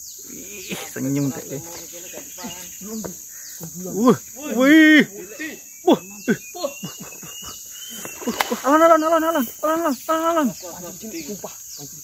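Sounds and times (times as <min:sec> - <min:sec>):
insects chorus: 0:00.0 - 0:12.0
voice calling out: 0:08.6 - 0:10.5.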